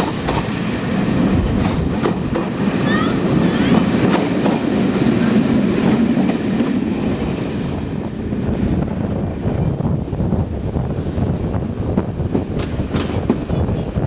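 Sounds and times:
wheels clicking over rail joints: 0:12.2 - 0:14.0.

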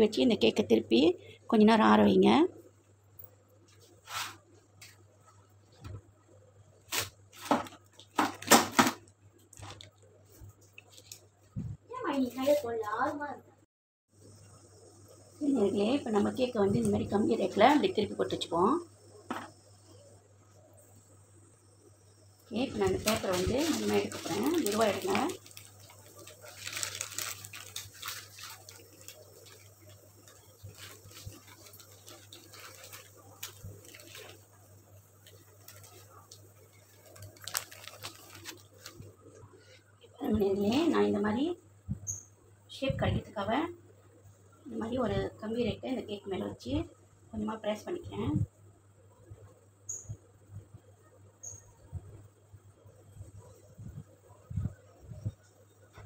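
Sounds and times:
baking paper crackling: 0:03.6 - 0:05.9, 0:06.8 - 0:08.9, 0:22.4 - 0:39.2
steady low hum: 0:13.3 - 0:56.0.

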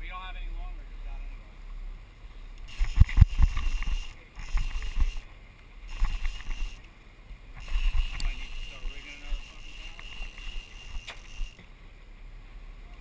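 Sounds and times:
fishing reel being cranked: 0:02.7 - 0:05.3, 0:05.9 - 0:06.8, 0:07.6 - 0:11.6.

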